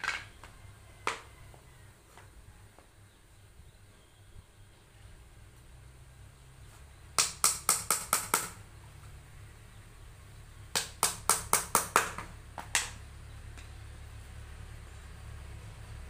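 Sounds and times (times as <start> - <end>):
hammer tapping nails into wood: 7.2 - 8.6, 10.8 - 13.0.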